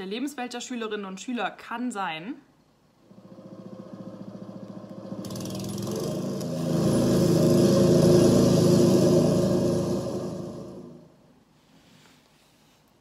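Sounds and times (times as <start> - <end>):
motor engine chugging: 3.0 - 11.1.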